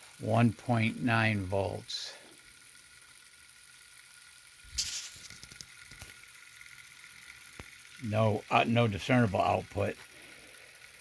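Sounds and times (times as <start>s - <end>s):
small motor hissing with high tone: 0.0s - 11.0s
brief burst of noise: 4.7s - 5.4s.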